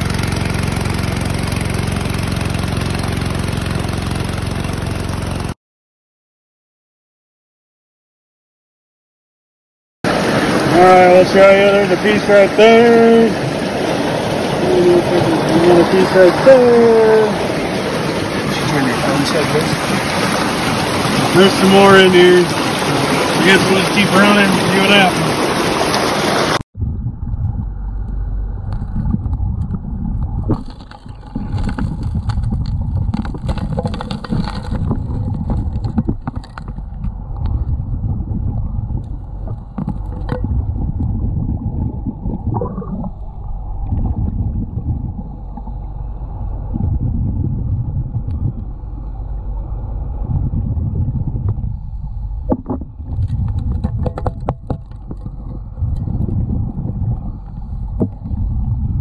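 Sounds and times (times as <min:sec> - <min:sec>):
muffled underwater engine rumble: 0:10.1 - 0:59.0
rocks knocking underwater: 0:28.7 - 0:43.2, 0:43.8 - 0:45.8, 0:46.6 - 0:48.8, 0:52.5 - 0:59.0.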